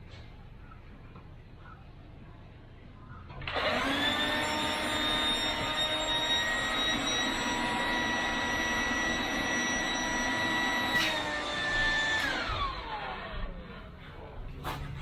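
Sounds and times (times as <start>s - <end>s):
electric air pump whining: 3.4s - 13.8s.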